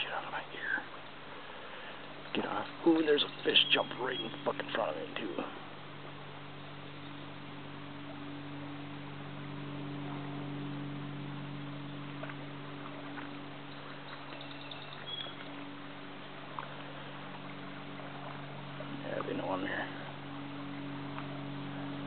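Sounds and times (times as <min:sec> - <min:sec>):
low hum: 0:00.0 - 0:22.0
faint high chirp: 0:02.2 - 0:04.7, 0:13.1 - 0:15.6.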